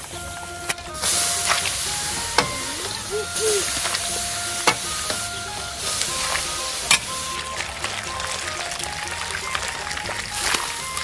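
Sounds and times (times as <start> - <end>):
soft background music: 0.0 - 11.0
hiss of hot broth: 1.0 - 7.6.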